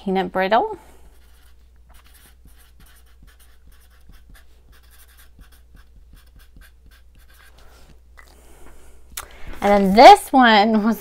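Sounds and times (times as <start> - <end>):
marker scratching on paper: 1.0 - 8.0.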